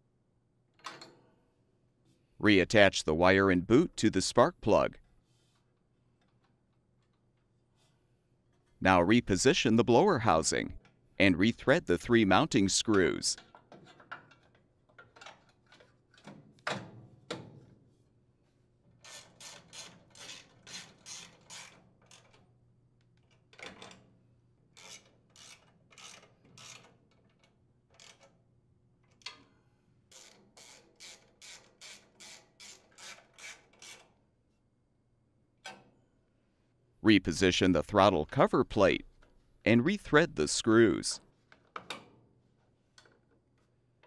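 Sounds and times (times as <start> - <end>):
hand ratchet rasping: 19.0 - 22.3, 24.8 - 28.3, 30.1 - 34.2.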